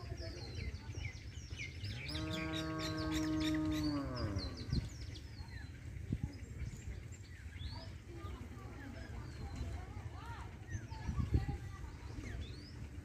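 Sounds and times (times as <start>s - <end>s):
small birds chirping: 0.0s - 13.0s
cow mooing: 2.0s - 4.6s.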